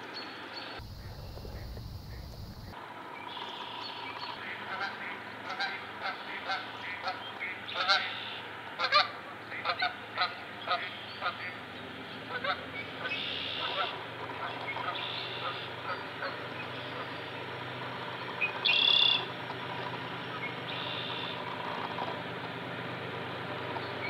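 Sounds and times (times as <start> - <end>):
geese honking: 4.4 - 11.6, 12.3 - 22.2.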